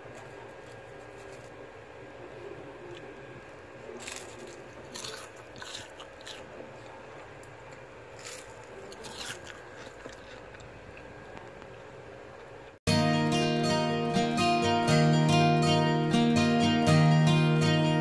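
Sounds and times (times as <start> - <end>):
crispy fried leaves crunching: 0.1 - 1.6, 3.8 - 11.6.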